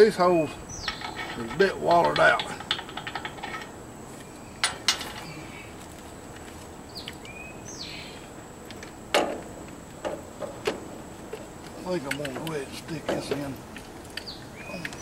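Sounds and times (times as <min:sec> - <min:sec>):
bird chirping: 0:00.0 - 0:02.9, 0:04.2 - 0:08.4, 0:11.4 - 0:15.0
sharp metal clicks and knocks: 0:00.8 - 0:03.8, 0:04.6 - 0:05.3, 0:08.6 - 0:15.0.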